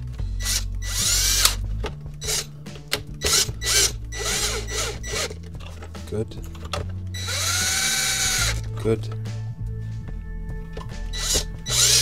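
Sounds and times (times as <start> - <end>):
cordless drill driving screws: 0.4 - 1.6, 2.2 - 2.5, 3.2 - 5.4, 7.2 - 8.6, 11.1 - 12.0.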